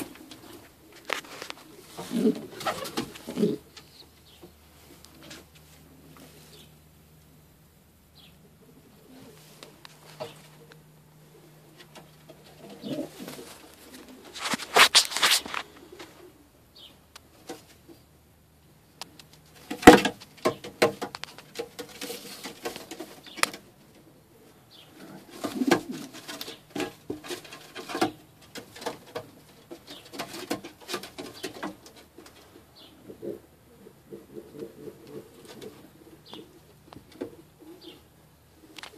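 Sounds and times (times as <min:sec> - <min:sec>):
pigeons cooing: 0:00.0 - 0:07.5, 0:08.2 - 0:14.6, 0:15.3 - 0:18.2, 0:19.4 - 0:38.9
wing flapping: 0:01.1 - 0:03.6
scuffling against wood: 0:11.7 - 0:16.2.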